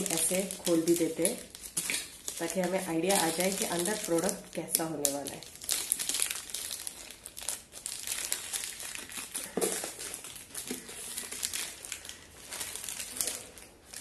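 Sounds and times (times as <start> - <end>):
plastic wrap crinkling: 0.0 - 14.0.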